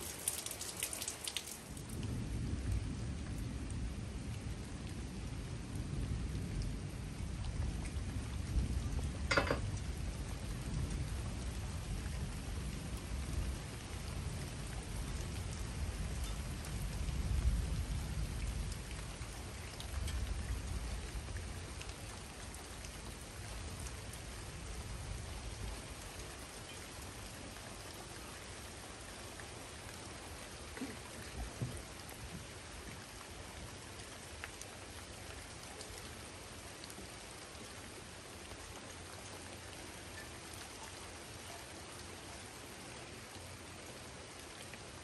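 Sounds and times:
steady rain falling: 0.0s - 45.0s
low rumble of thunder: 1.6s - 27.4s.

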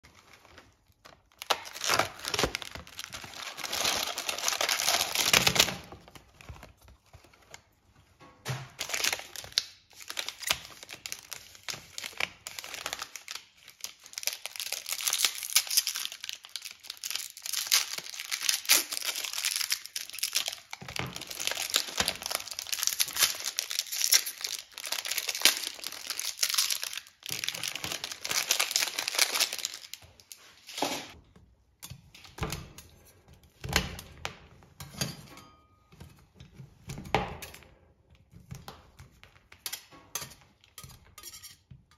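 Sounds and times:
plastic wrappers crinkling and tearing: 0.0s - 7.8s, 8.7s - 31.2s.

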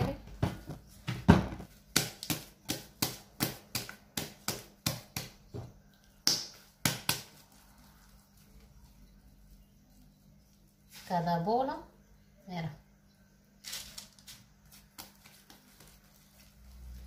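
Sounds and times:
hands slapping wet dough: 0.1s - 8.7s, 14.6s - 16.8s.

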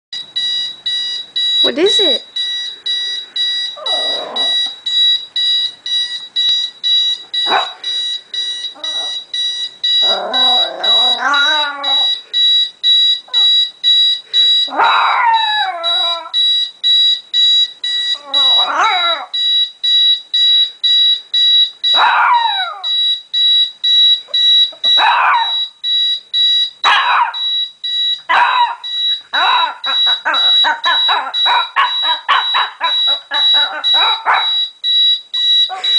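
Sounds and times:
alarm clock beeping: 0.2s - 35.9s
puppy crying: 3.7s - 4.8s, 7.4s - 7.8s, 8.8s - 9.2s, 10.0s - 12.1s, 13.3s - 13.6s, 14.7s - 16.4s, 18.1s - 19.3s, 22.0s - 22.9s, 24.8s - 25.6s, 26.8s - 27.4s, 28.3s - 34.6s.

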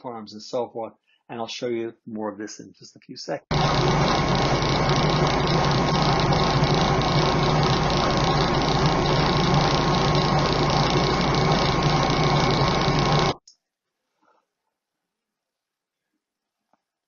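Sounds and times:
low hum: 3.5s - 13.4s
steady high tone: 3.5s - 13.4s.

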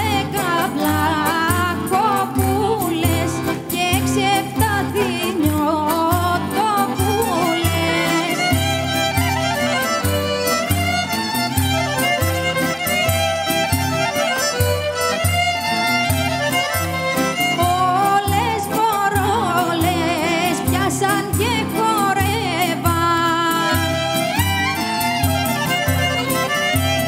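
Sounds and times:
folk ensemble playing dance tune: 0.0s - 27.0s
percussion beat: 0.0s - 27.0s
violin melody: 0.0s - 27.0s.

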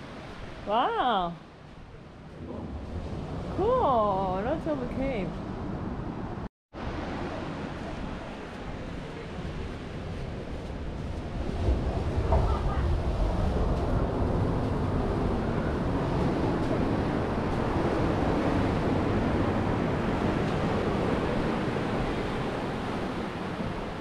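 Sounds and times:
wind rumbling on microphone: 0.0s - 24.0s
ocean surf breaking on beach: 6.8s - 24.0s.

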